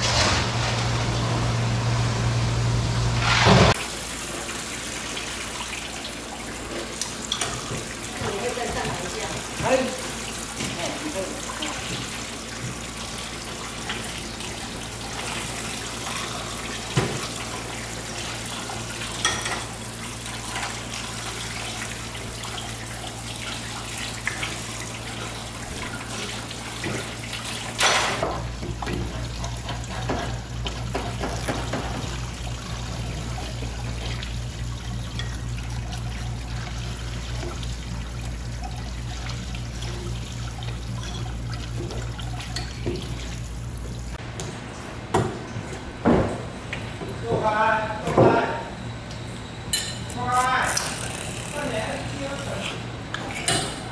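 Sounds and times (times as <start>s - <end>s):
tap water running into sink: 3.7s - 44.2s.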